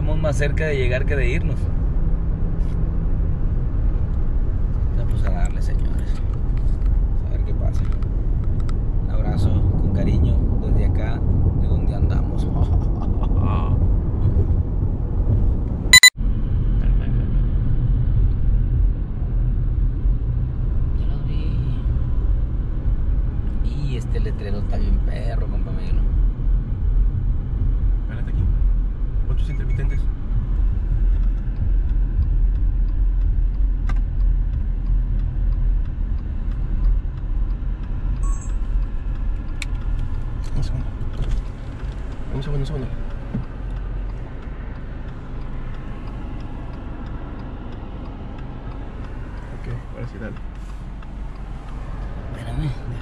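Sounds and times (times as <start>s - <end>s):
car cabin road rumble: 0.0s - 53.0s
short electronic beep: 16.0s - 16.2s, 38.2s - 38.7s.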